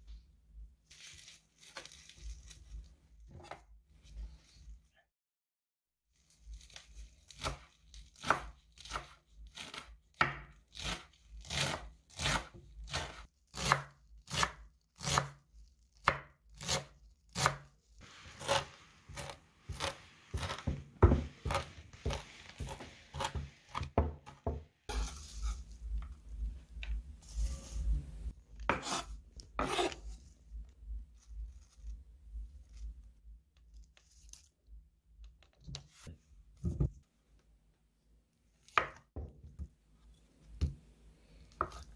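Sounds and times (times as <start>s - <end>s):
knife chopping on wooden board: 8.2s - 15.4s, 16.0s - 26.1s, 28.7s - 30.0s.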